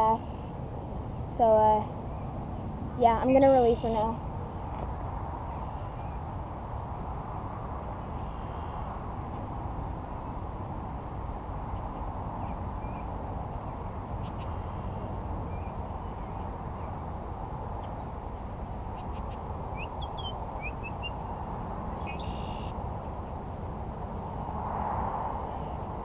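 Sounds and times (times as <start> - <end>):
low rushing outdoor noise: 0.0 - 26.0
faint bird chirps: 18.9 - 22.8.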